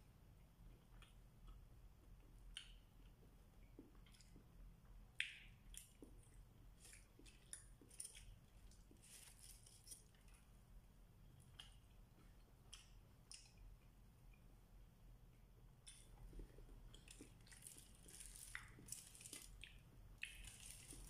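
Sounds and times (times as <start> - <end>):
soft chewing: 0.0 - 21.0
foil and plastic bag crinkling: 17.6 - 19.6, 20.4 - 21.0.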